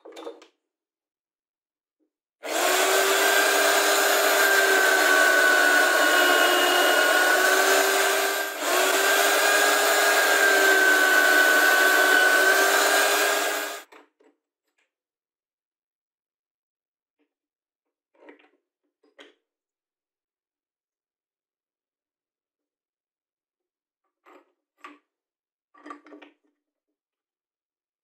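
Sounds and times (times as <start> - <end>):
drill press boring into wood: 2.4 - 13.8.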